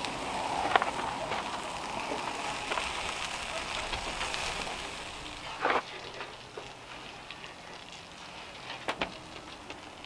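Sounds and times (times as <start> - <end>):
wood fire crackling: 0.0 - 10.0.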